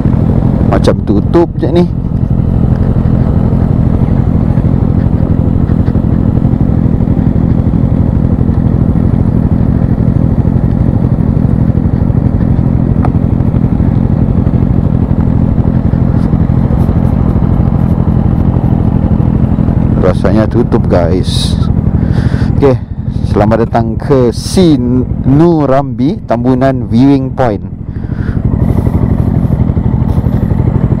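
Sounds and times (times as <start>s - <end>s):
motorcycle engine idling steadily: 0.0s - 31.0s.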